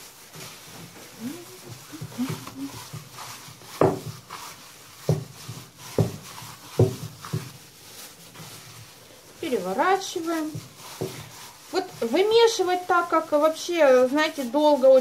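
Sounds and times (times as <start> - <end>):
dough squelching in bowl: 0.0 - 15.0
plastic gloves rustling: 0.0 - 15.0
dull thumps of dough: 1.6 - 8.7, 10.3 - 12.1.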